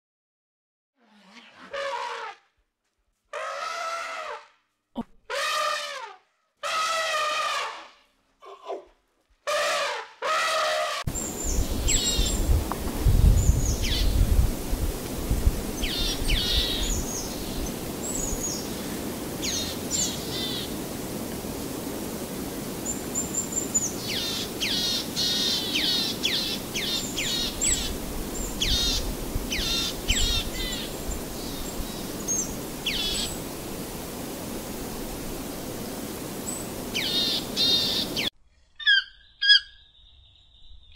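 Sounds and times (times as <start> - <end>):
elephant trumpet calls: 1.0 - 2.4, 3.3 - 4.6, 5.3 - 8.8, 9.5 - 11.1.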